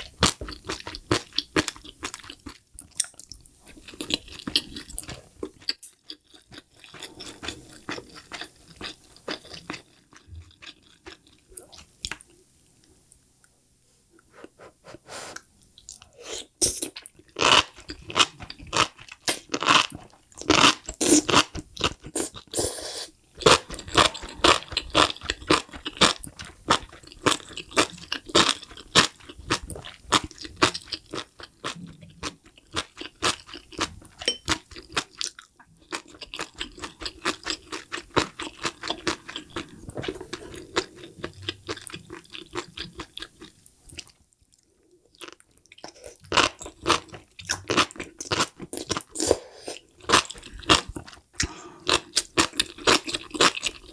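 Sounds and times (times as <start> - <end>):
wet crunchy chewing: 23.4 - 33.9.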